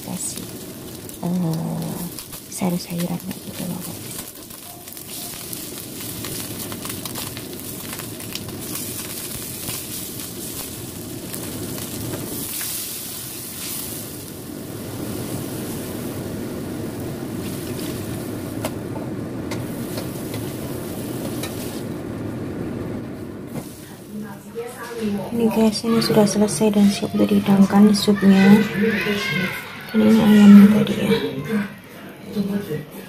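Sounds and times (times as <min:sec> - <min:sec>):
broth bubbling at a boil: 0:00.0 - 0:24.4
fish sizzling in oil: 0:00.0 - 0:24.6
wooden spatula stirring in wok: 0:00.4 - 0:14.4, 0:17.4 - 0:18.7.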